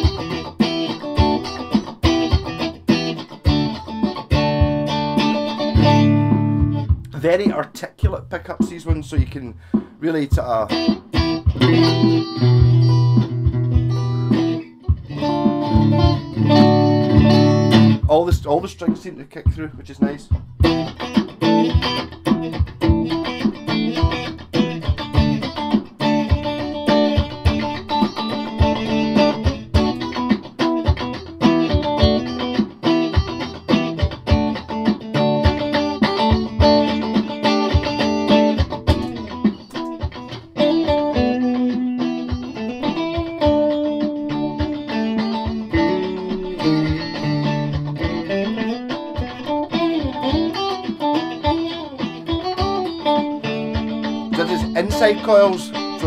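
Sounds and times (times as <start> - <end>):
electric guitar with reverb: 0.0 - 56.0.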